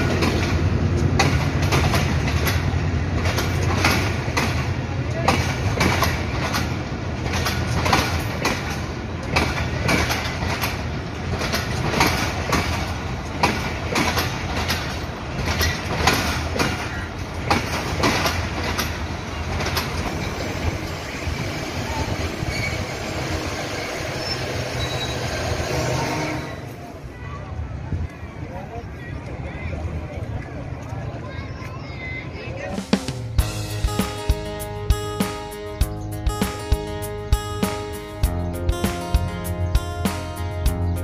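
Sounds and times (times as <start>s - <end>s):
train wheels clicking over rail joints: 0.0s - 26.0s
train rumble: 0.0s - 28.8s, 29.8s - 41.0s.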